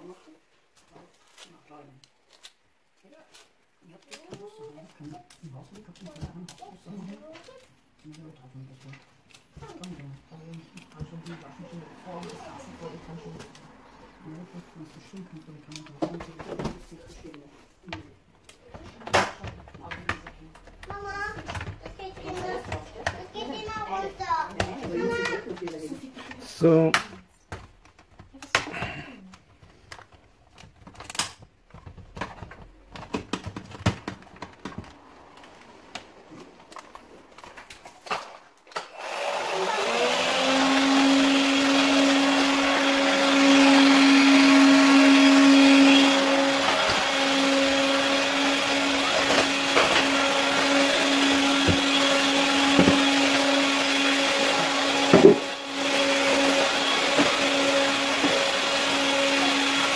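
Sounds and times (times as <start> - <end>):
vacuum motor whine: 38.8 - 59.9.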